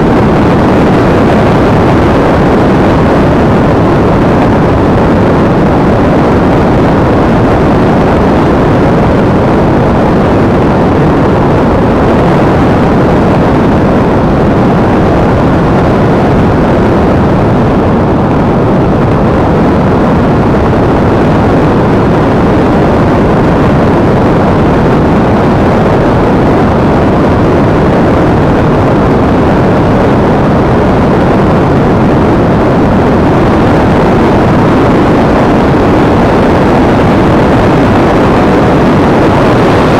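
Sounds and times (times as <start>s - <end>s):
wind buffeting microphone: 0.0s - 39.9s.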